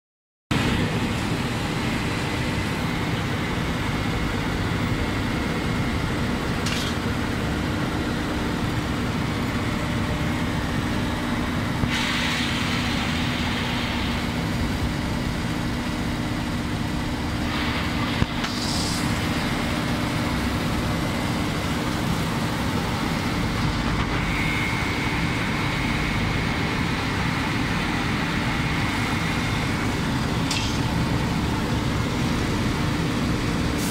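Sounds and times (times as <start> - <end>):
machine running with low hum: 0.5 - 33.9
rush of hiss: 11.9 - 14.6.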